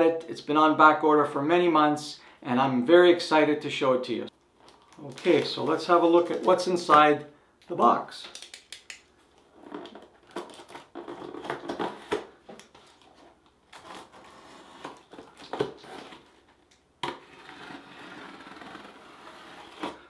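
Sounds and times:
cardboard crackling: 0:04.6 - 0:07.0.

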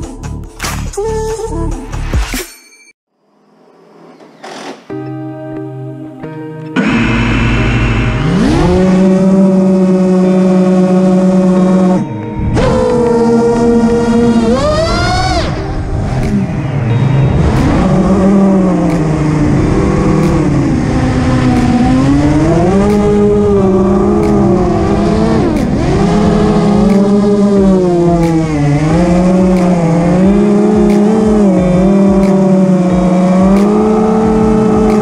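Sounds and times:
quadcopter motors whining: 0:06.8 - 0:12.0, 0:12.6 - 0:16.4, 0:17.3 - 0:35.0.

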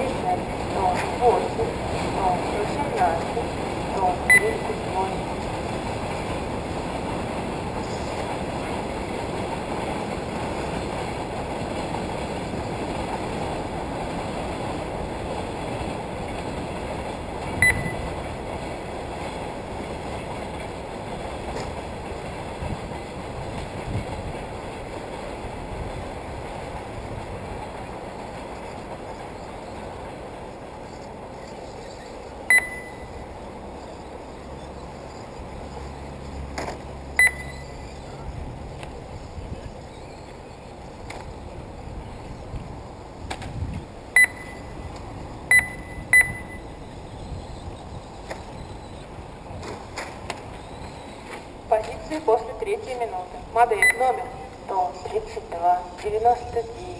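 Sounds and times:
high electronic beeps: 0:04.2 - 0:04.7, 0:17.6 - 0:18.2, 0:32.5 - 0:33.2, 0:37.2 - 0:38.0, 0:44.2 - 0:44.8, 0:45.5 - 0:46.7, 0:53.8 - 0:54.2.

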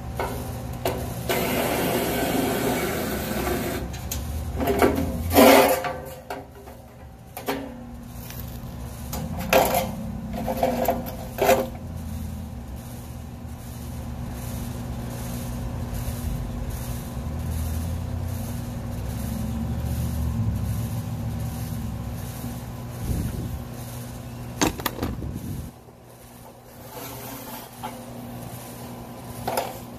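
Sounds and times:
steady low hum: 0:00.0 - 0:29.9
metallic clanks: 0:09.1 - 0:11.8.

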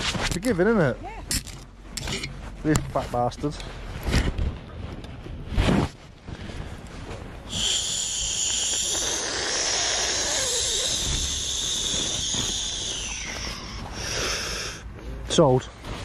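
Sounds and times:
person's high-pitched whine: 0:07.5 - 0:14.8.

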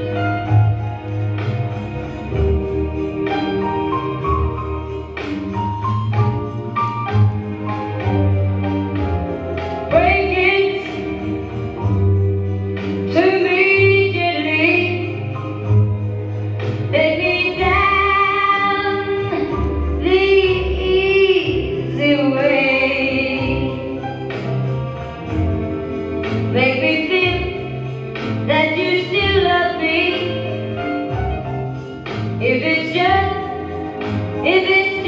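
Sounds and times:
bass accompaniment: 0:00.0 - 0:35.0
woman singing: 0:09.9 - 0:11.2, 0:13.1 - 0:15.3, 0:16.9 - 0:24.0, 0:26.4 - 0:27.8, 0:28.4 - 0:30.8, 0:32.4 - 0:35.0.

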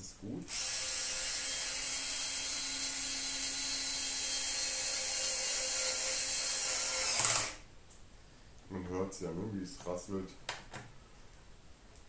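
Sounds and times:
cordless drill motor whining: 0:00.5 - 0:07.6.

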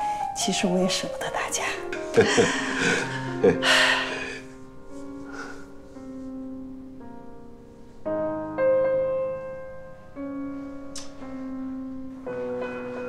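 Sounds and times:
slow soft piano music: 0:00.0 - 0:13.0.

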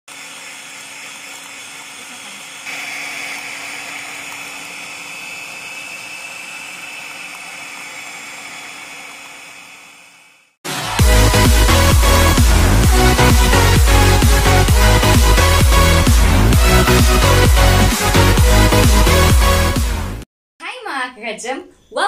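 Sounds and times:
electric mixer whirring: 0:00.1 - 0:20.0.

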